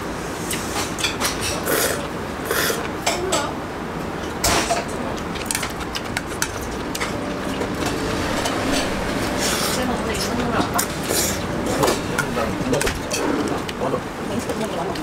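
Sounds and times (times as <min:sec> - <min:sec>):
utensils clinking on metal bowl: 0:04.2 - 0:15.0.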